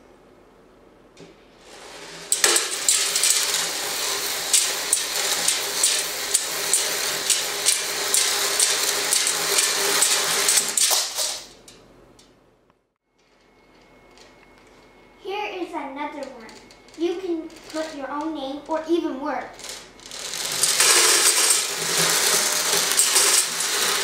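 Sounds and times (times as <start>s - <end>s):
plastic bead necklaces clattering: 19.6s - 24.0s.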